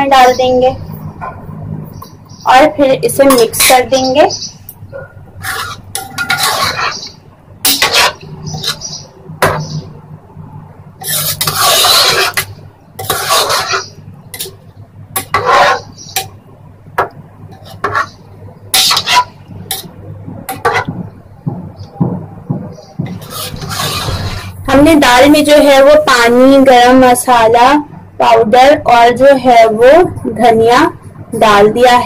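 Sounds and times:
metal spoon scraping a pot: 0:05.4 - 0:09.7, 0:11.0 - 0:14.6, 0:15.2 - 0:16.3, 0:17.5 - 0:19.9, 0:23.1 - 0:24.6.

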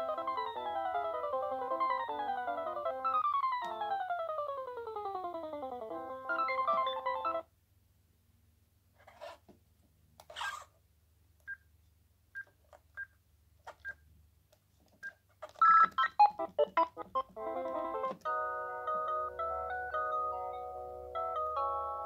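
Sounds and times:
polyphonic ringtone: 0:00.0 - 0:07.4, 0:15.6 - 0:22.0
ringtone melody of held notes: 0:00.0 - 0:07.4, 0:15.6 - 0:22.0.

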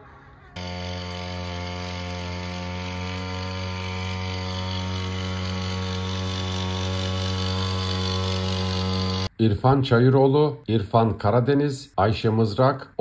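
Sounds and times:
small sprayer engine running: 0:00.6 - 0:09.3.

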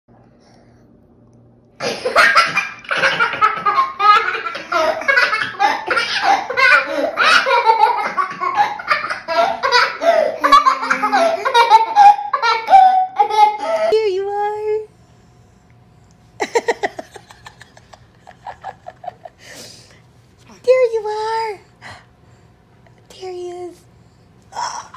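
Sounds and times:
hearty laughter: 0:16.4 - 0:19.4.

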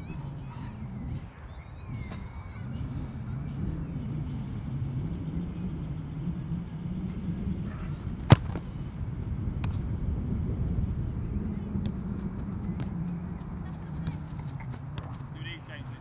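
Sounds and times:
steady low hum: 0:00.0 - 0:16.0
boot kicking football: 0:08.0 - 0:08.7, 0:12.7 - 0:16.0.

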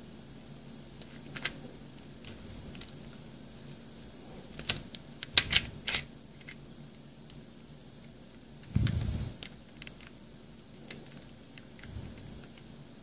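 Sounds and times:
plastic puzzle clicking: 0:01.0 - 0:01.6, 0:04.5 - 0:06.6.

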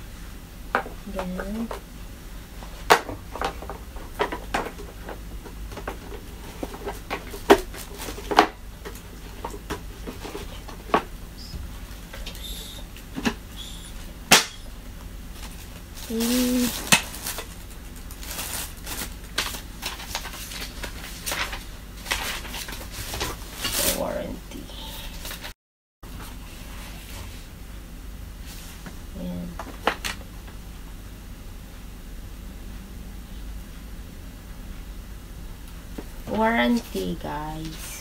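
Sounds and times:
paper rustling: 0:15.4 - 0:24.1.

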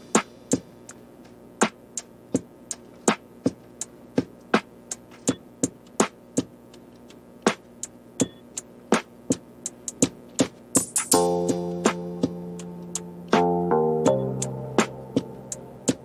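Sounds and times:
sparse electronic beat: 0:00.0 - 0:16.0
faint sustained backing: 0:11.1 - 0:16.0.

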